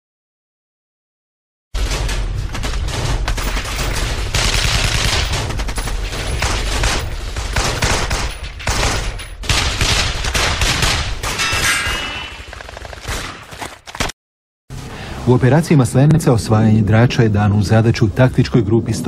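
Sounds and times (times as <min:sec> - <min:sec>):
automatic gunfire bursts: 0:04.3 - 0:05.5
low rumble: 0:14.7 - 0:19.0.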